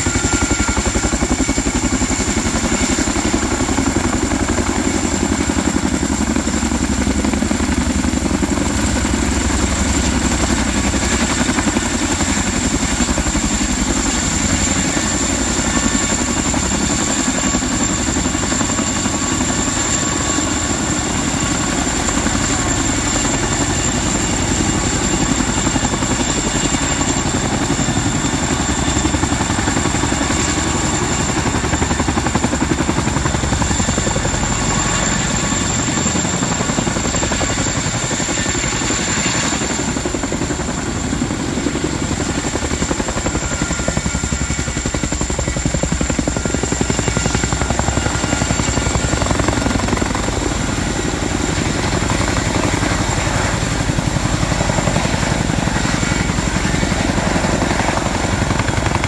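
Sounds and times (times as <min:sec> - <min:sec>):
helicopter rotor beat: 0:00.0 - 0:59.0.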